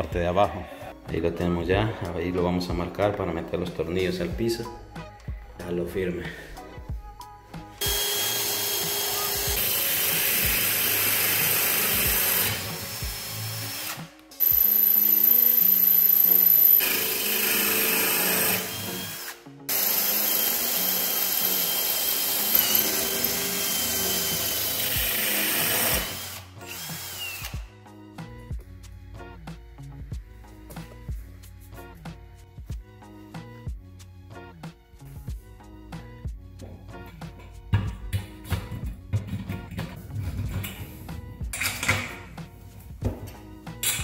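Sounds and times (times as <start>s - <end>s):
power drill boring through tile: 7.8s - 27.6s.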